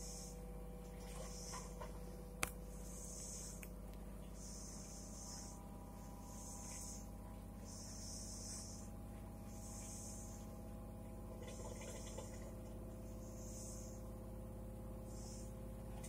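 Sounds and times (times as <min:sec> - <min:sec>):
washing machine hum: 0:00.0 - 0:16.0
washing machine hiss: 0:04.4 - 0:10.7, 0:15.0 - 0:15.6.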